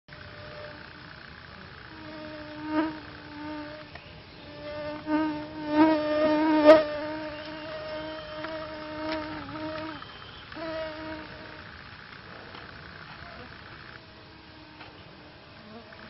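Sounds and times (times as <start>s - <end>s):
insect buzzing: 0.1s - 16.0s.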